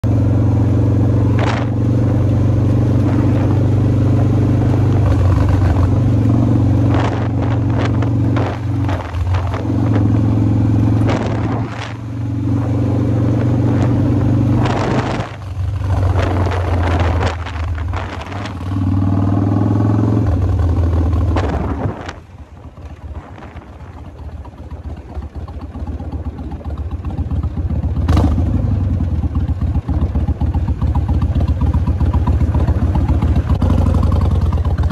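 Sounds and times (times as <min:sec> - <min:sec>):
motorcycle engine running: 0:00.0 - 0:34.9
wind noise on microphone: 0:01.3 - 0:25.1.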